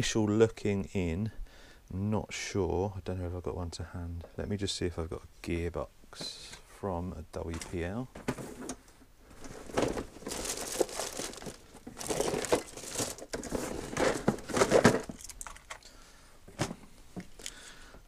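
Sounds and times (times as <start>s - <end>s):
crinkling and rustling: 7.4s - 17.6s
rummaging through spare parts: 7.5s - 15.9s.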